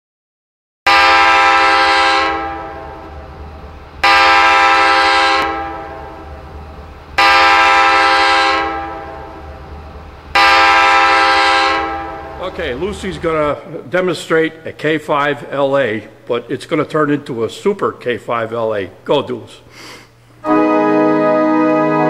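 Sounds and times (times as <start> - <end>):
pipe organ chord blasts: 0.9 - 13.6, 20.4 - 22.0.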